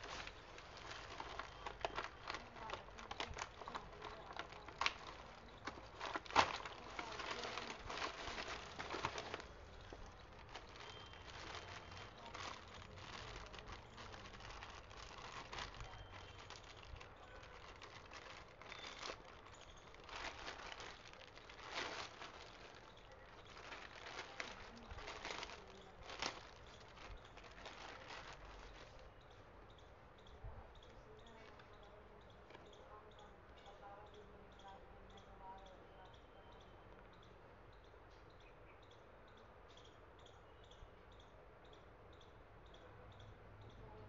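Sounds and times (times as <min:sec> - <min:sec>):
paper and plastic crinkling: 0:00.0 - 0:29.1.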